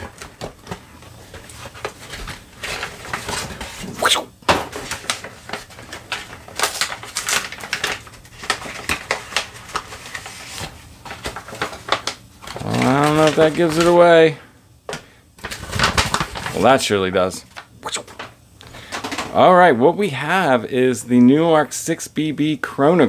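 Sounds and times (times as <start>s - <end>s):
paper and cardboard rustling: 0.0s - 14.3s, 15.4s - 17.0s
loud packaging crackles: 0.0s - 19.4s.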